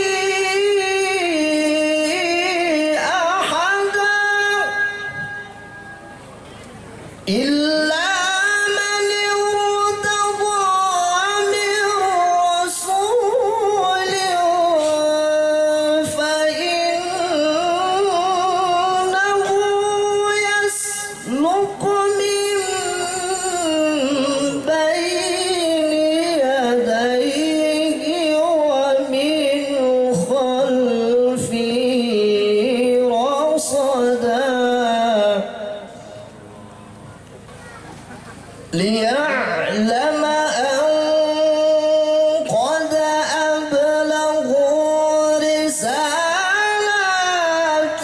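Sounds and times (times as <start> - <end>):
man chanting melodically: 0.0 - 5.8, 7.2 - 36.4, 38.7 - 48.0.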